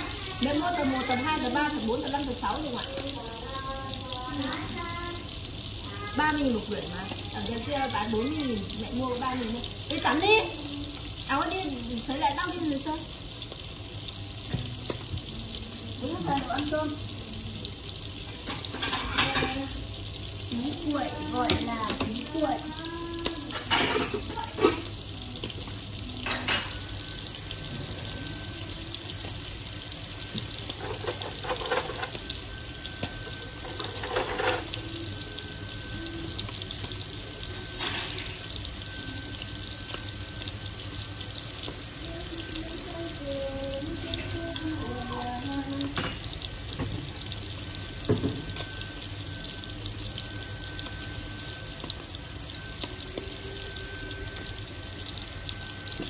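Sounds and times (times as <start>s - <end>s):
kitchen tap running into sink: 5.8s - 13.1s, 20.5s - 25.3s, 30.3s - 32.3s.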